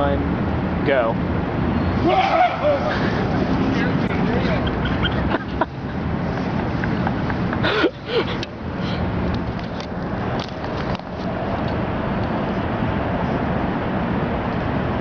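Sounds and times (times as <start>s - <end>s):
outdoor background rumble: 0.0s - 15.0s
brief cry: 2.0s - 3.0s.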